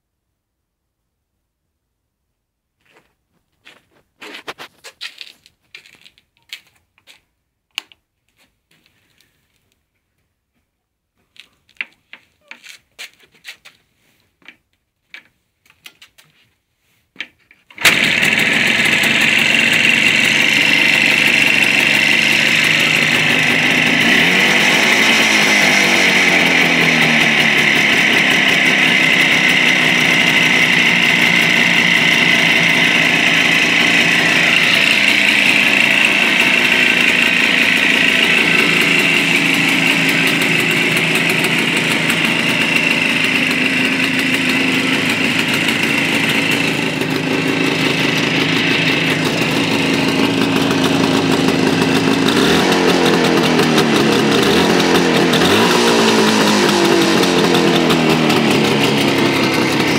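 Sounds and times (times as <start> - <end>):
engine revving: 17.8 - 59.9
motorcycle engine idling: 17.8 - 59.9.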